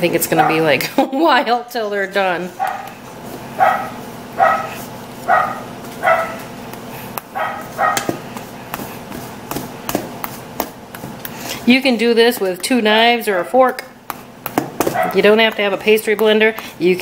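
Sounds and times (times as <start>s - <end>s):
dog barking: 2.6s - 2.9s, 3.6s - 6.4s, 7.4s - 8.1s, 14.9s - 15.2s.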